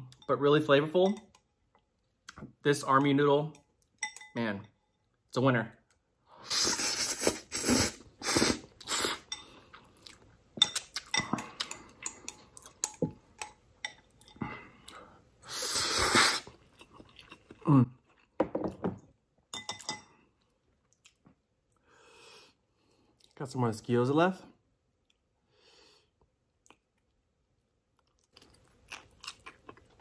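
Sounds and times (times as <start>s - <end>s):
person slurping noodles: 6.4s - 9.3s, 15.4s - 16.6s
person chewing: 6.5s - 18.4s, 26.6s - 27.2s, 28.0s - 30.0s.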